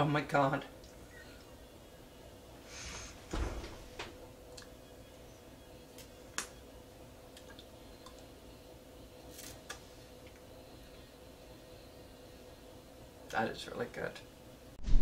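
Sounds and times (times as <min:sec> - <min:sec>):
faint steady hum: 0:00.0 - 0:14.8.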